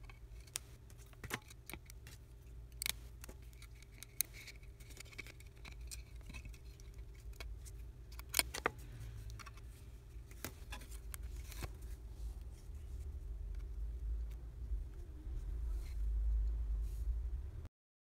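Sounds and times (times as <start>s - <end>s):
small clicks and taps of phone parts: 0.0s - 9.6s
steady low hum: 0.0s - 17.7s.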